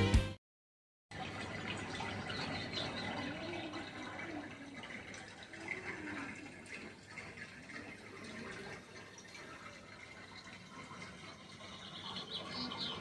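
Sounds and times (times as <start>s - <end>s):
running water trickling: 1.1s - 13.0s.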